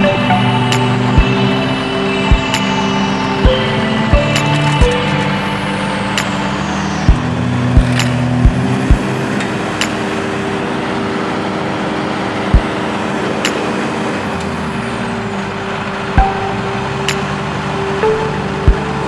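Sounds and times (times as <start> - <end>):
tractor diesel engine running hard: 0.0 - 19.0.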